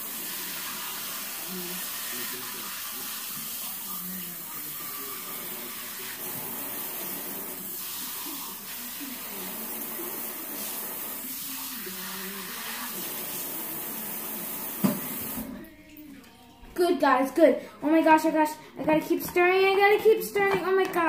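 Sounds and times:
tap water running into sink: 0.0s - 15.6s.

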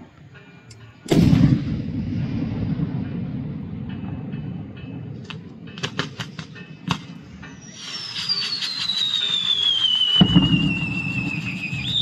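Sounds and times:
firework pops: 5.2s - 7.2s
fireworks crackling and fizzing: 5.2s - 12.0s
whistling firework: 5.8s - 12.0s.

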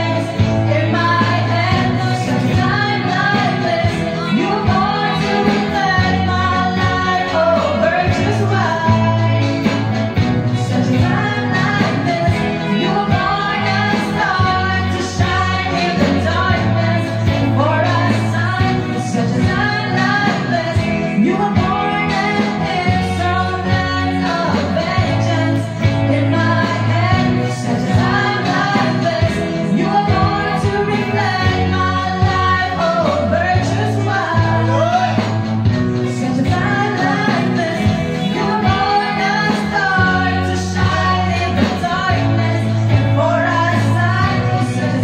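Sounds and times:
amplified instrumental accompaniment: 0.0s - 45.0s
two women singing: 0.0s - 45.0s.

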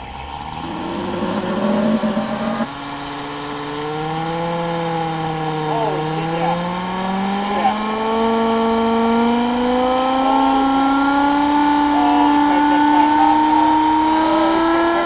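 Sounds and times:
steam engine whine: 0.0s - 8.3s.

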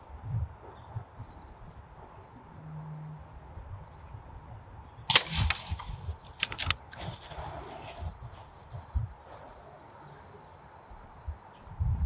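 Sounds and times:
air rifle shot: 5.1s - 6.8s
quick sharp clicks: 5.1s - 7.2s.

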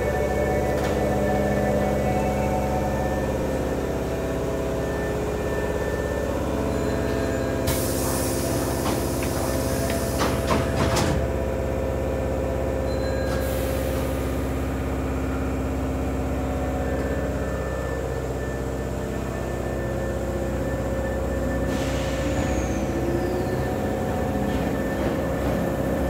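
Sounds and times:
electric train hum: 0.0s - 26.0s
air hiss: 7.7s - 10.5s.

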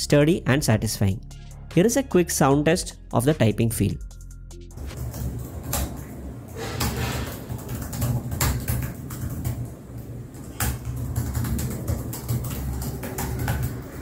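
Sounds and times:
laptop keyboard typing: 4.8s - 14.0s.

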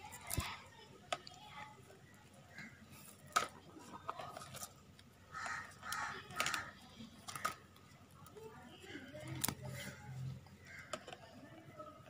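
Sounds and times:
plastic wire clicking: 4.2s - 10.0s.

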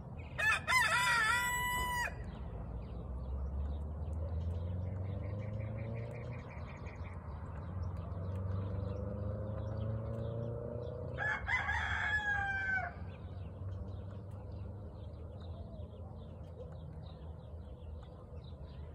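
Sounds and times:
rooster crowing: 0.4s - 2.3s, 11.2s - 13.0s.

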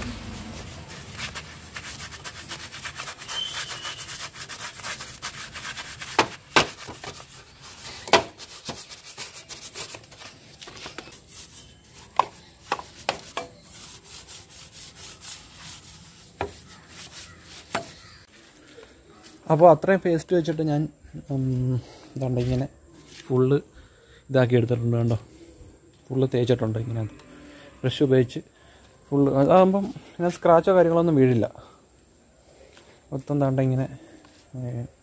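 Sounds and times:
brush scrubbing metal: 0.0s - 18.3s
brush knocking on metal: 6.0s - 7.3s, 12.0s - 13.6s, 16.3s - 18.2s.

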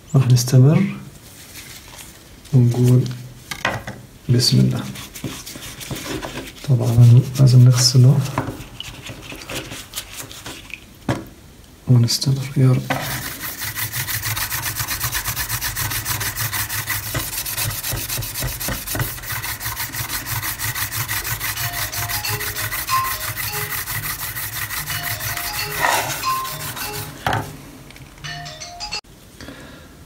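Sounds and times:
stone scrubbing a steel blade: 13.0s - 27.2s
faint phone ringtone: 28.2s - 29.0s.

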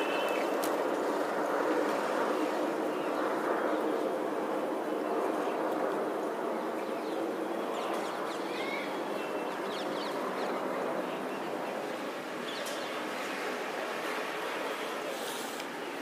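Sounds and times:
outdoor background noise: 0.0s - 16.0s
small birds chirping: 6.9s - 11.6s.

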